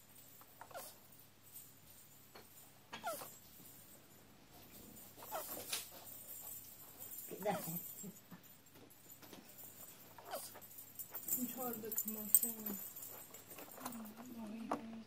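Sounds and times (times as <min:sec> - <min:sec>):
tortoise squeaking: 0:03.0 - 0:03.4, 0:05.2 - 0:05.7, 0:10.1 - 0:11.3.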